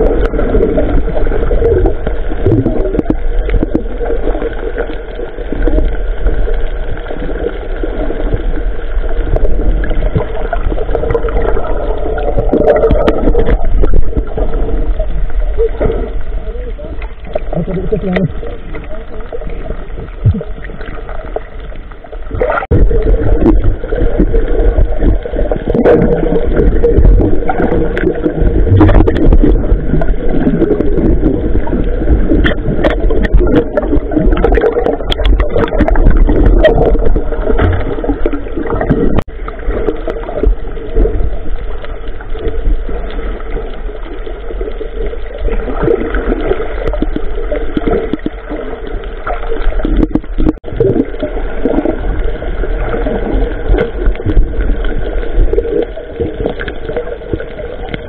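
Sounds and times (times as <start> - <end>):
water gurgling and sloshing: 0.0 - 58.0.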